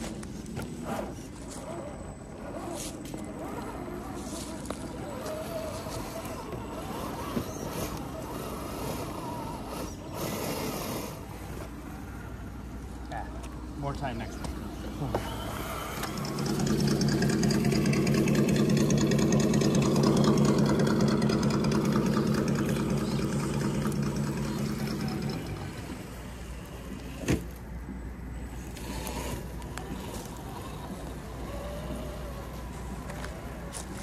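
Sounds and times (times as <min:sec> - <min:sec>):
electric motor and gears whining: 0:00.0 - 0:34.0.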